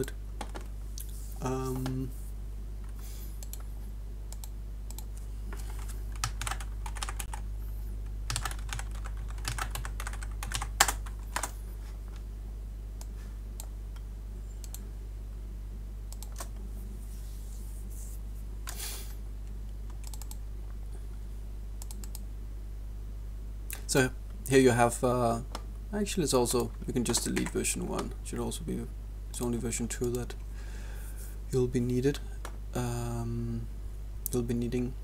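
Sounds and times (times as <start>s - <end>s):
low electrical hum: 0.0s - 35.0s
computer keyboard typing: 4.4s - 7.4s, 8.3s - 11.5s, 20.0s - 20.4s, 26.6s - 28.1s.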